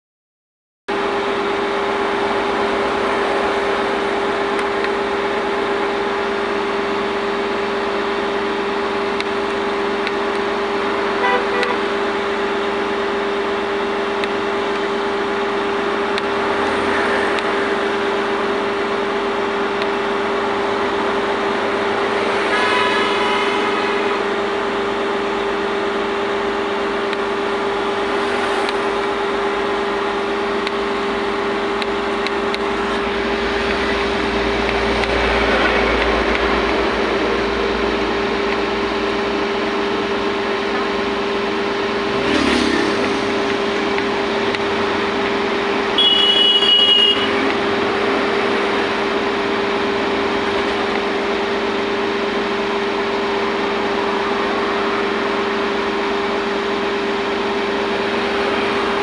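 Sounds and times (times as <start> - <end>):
milling machine drone and whine: 0.9 - 59.0
horn-like tones: 11.2 - 11.9, 21.6 - 25.1, 45.9 - 48.0.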